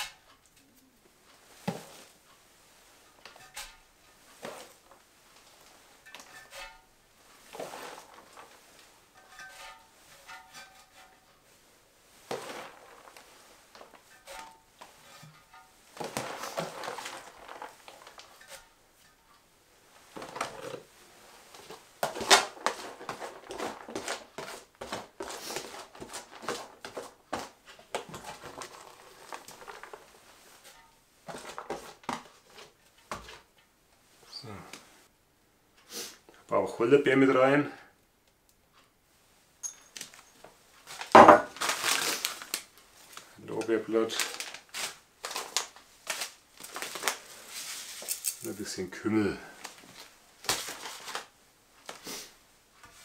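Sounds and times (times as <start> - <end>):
shredded cabbage rustling and crunching: 7.3 - 11.2, 12.2 - 18.8, 20.1 - 32.6, 40.8 - 52.3.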